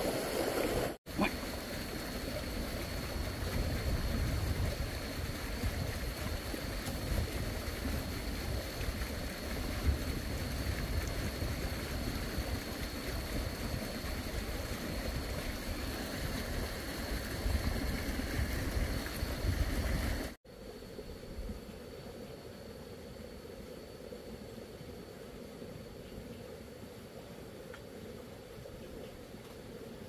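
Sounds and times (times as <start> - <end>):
wind buffeting microphone: 2.7 - 20.4.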